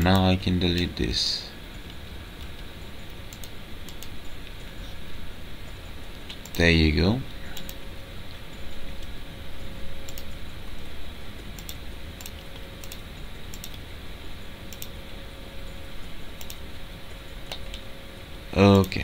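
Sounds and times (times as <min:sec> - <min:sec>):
low background hum: 0:00.0 - 0:19.0
mouse and keyboard clicks: 0:11.6 - 0:13.8, 0:14.7 - 0:15.0.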